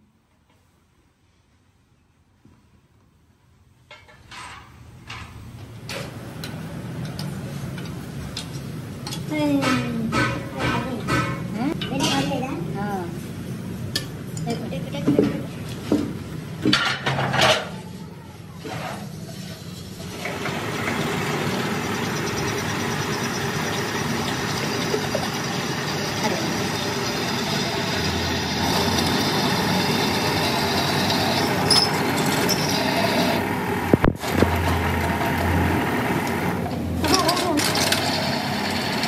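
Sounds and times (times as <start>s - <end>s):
drill press drilling through steel: 20.2s - 35.4s.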